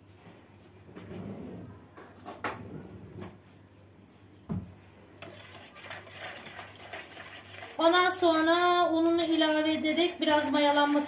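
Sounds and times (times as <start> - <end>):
spoon stirring water: 5.2 - 9.2.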